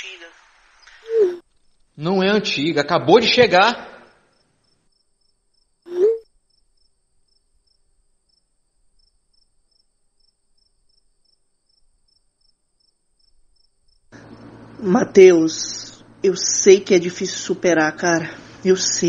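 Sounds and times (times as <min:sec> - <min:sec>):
cricket chirping: 0:04.0 - 0:14.6
low hum: 0:14.1 - 0:18.7.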